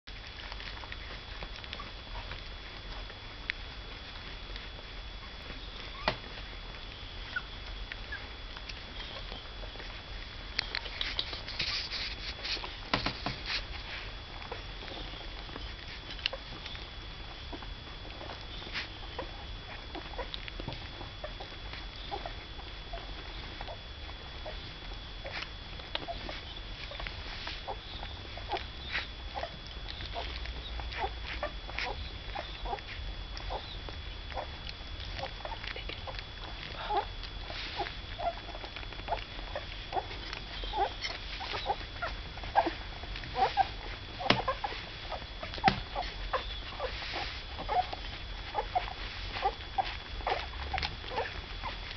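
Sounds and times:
puppy lapping food: 25.2s - 51.9s
puppy squeaks: 37.8s - 42.7s, 43.4s - 51.8s.

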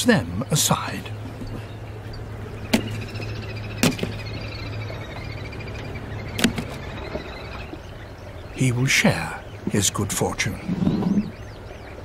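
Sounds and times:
steady low hum: 0.0s - 12.0s
fish slapping on wooden boards: 2.7s - 3.0s, 3.8s - 4.2s, 6.4s - 6.8s.

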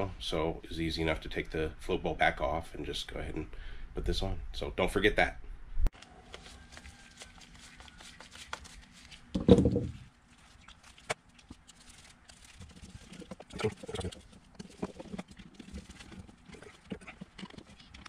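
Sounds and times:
dull thump on workbench: 9.4s - 10.0s.

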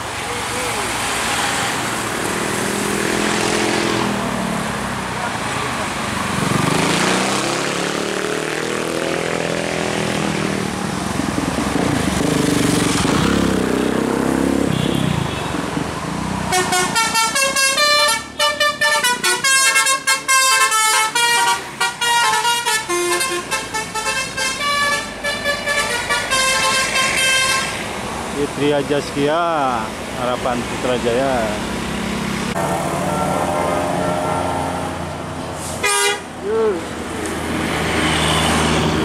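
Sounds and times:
musical horn melody: 16.5s - 27.7s, 32.9s - 34.7s, 35.7s - 36.3s.

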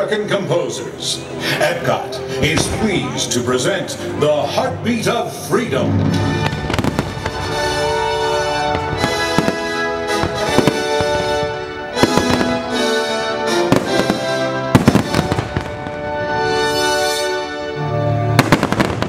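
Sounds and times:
music with sustained notes: 0.0s - 19.0s
fireworks bangs and crackles: 2.4s - 3.2s, 6.1s - 16.7s, 18.3s - 19.0s.

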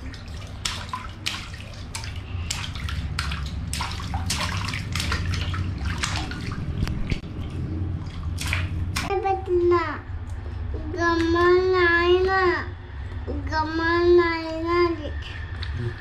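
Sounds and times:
bath water splashing: 0.0s - 9.7s
running water rumble: 0.0s - 10.1s.

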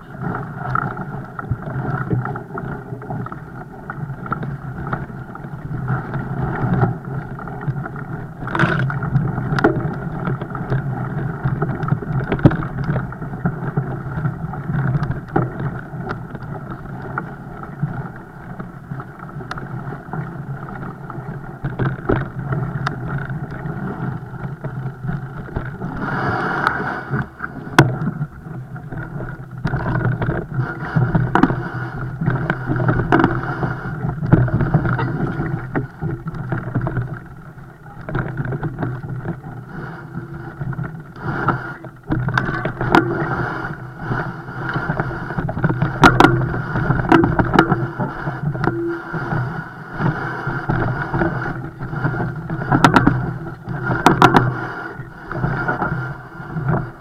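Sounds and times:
wind and rolling noise: 0.0s - 57.0s
bike knocks and rattles: 34.2s - 35.2s.

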